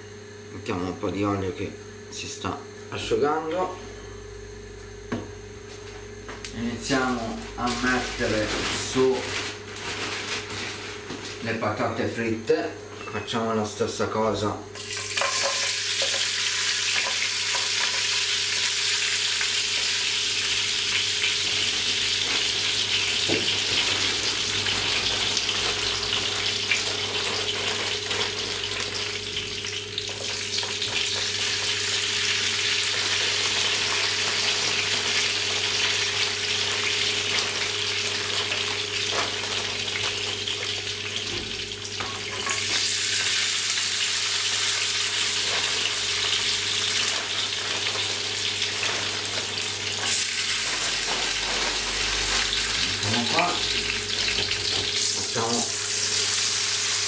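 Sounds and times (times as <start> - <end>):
oil sizzling in a frying pan: 14.8 - 57.0.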